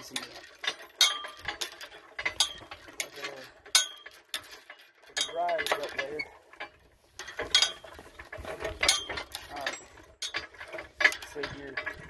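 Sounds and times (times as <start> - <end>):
metal crane clanking and rattling: 0.0 - 12.0.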